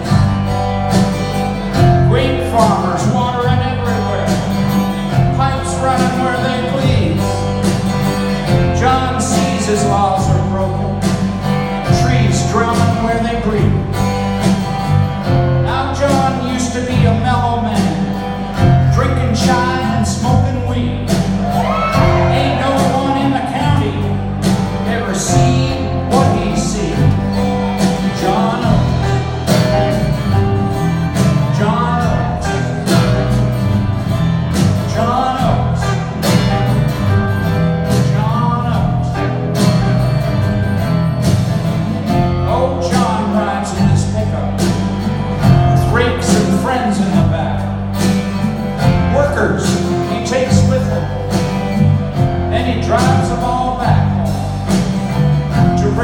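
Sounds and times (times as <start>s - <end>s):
bass guitar: 0.0s - 56.0s
drum kit: 0.0s - 56.0s
electric guitars: 0.0s - 56.0s
strummed acoustic guitar: 0.0s - 56.0s
male lead vocal: 1.8s - 7.6s, 8.5s - 14.0s, 15.4s - 33.9s, 34.6s - 36.6s, 37.8s - 39.4s, 42.0s - 47.9s, 48.9s - 56.0s.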